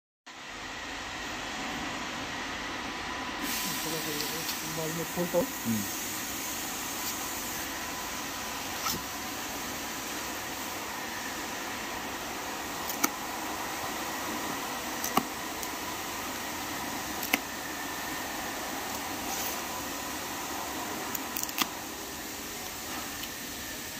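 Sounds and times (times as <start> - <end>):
fan-like hiss: 0.3 - 23.9
plastic straps snapping: 15.0 - 15.3.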